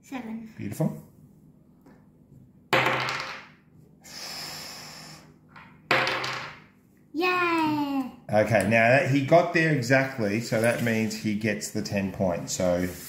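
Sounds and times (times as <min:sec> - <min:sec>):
dice clattering on wooden table: 0:02.7 - 0:03.6, 0:05.5 - 0:06.7.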